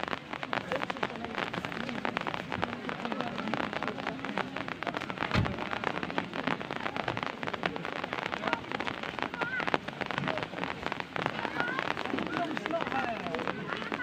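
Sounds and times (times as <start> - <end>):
rain pattering hard: 0.0 - 14.0
low thump: 5.3 - 5.6.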